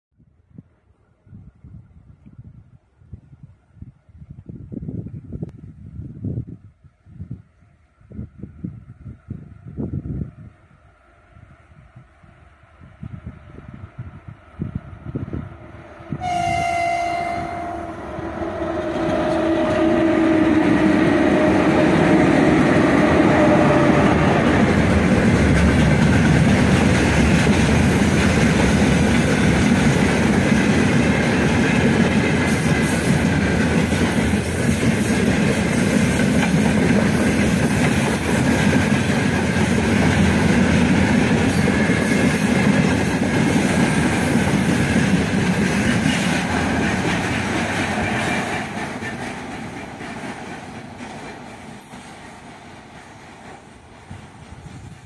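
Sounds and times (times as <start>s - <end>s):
freight wagons rolling on rail: 0.4s - 5.6s, 10.8s - 55.0s
locomotive whine: 9.3s - 52.9s
locomotive horn blast: 16.1s - 24.4s.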